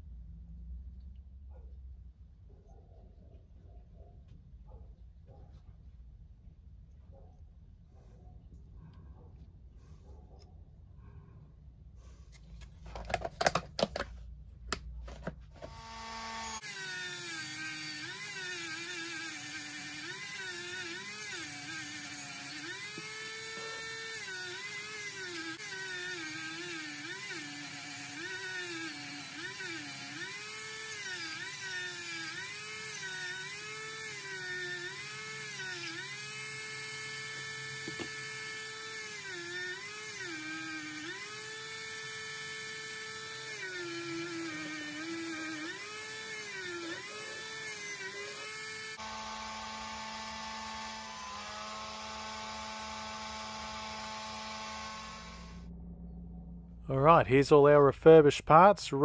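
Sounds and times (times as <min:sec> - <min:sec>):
rotary tool polishing metal: 0:15.6 - 0:55.6.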